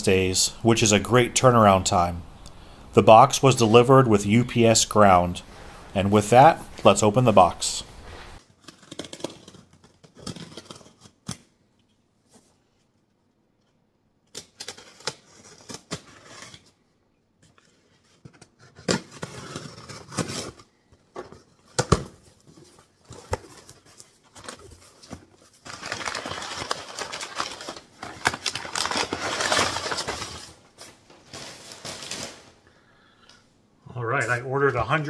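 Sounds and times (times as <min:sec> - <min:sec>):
packing paper crinkling: 0:21.3 - 0:32.6.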